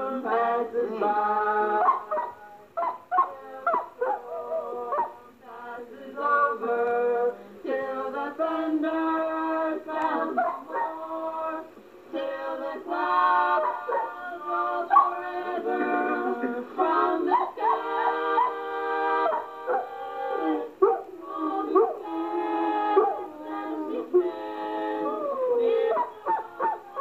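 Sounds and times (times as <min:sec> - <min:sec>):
people singing in harmony: 0:00.0 - 0:27.0
dog howling: 0:13.6 - 0:14.2, 0:17.2 - 0:18.6, 0:19.2 - 0:22.1, 0:22.9 - 0:24.3, 0:25.0 - 0:27.0.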